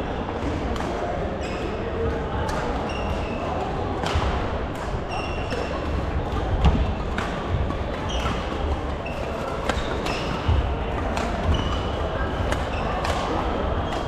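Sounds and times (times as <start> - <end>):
low hum of sports hall: 0.0 - 14.0
rackets striking shuttlecock: 4.0 - 8.6, 9.5 - 14.0.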